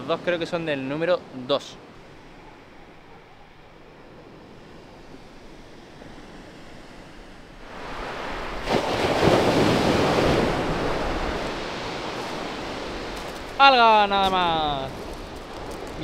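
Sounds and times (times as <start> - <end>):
wind on microphone: 3.9 - 13.6
waves breaking on shingle: 8.5 - 16.0.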